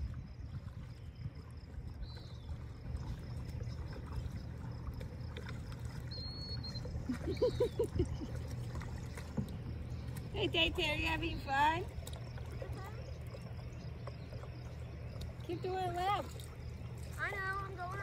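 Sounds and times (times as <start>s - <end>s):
paddle dipping and dripping water: 0.0s - 18.0s
steady low rumble: 0.0s - 18.0s
bird chirping: 6.1s - 11.4s.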